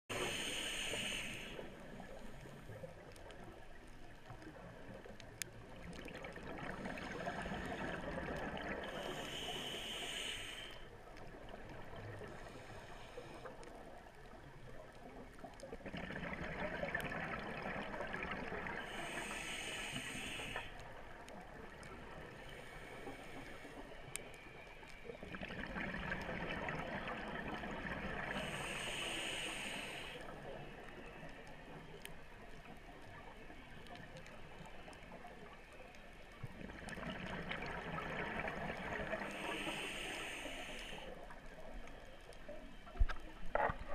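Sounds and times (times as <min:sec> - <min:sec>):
hissing inhalation through regulator: 0:00.1 - 0:02.5, 0:06.8 - 0:11.0, 0:12.2 - 0:13.7, 0:18.7 - 0:20.9, 0:28.2 - 0:31.6, 0:38.4 - 0:41.3
bubbles gurgling underwater: 0:15.8 - 0:18.8, 0:25.3 - 0:28.3.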